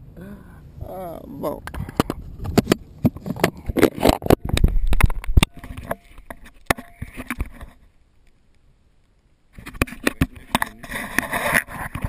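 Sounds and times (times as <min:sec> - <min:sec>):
sharp clicks knocks and scraping: 0:01.6 - 0:07.8, 0:09.6 - 0:12.0.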